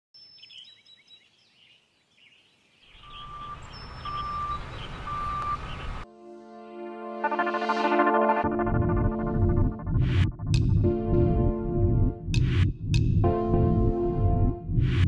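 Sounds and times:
birds chirping: 0.2 - 6.0
reversing alarm beeping: 3.0 - 6.0
vehicle engine rumble: 3.1 - 6.0
synthesizer music: 6.0 - 15.0.

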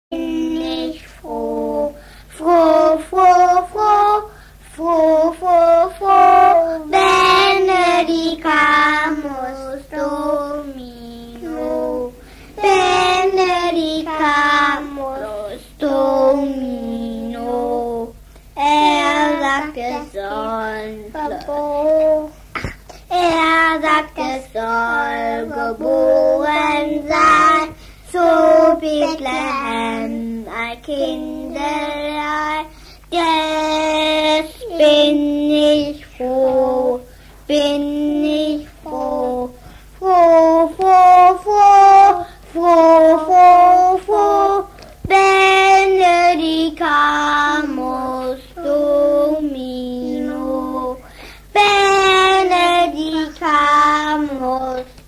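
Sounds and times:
child singing unaccompanied: 0.1 - 55.0
steady low hum: 0.1 - 55.0.

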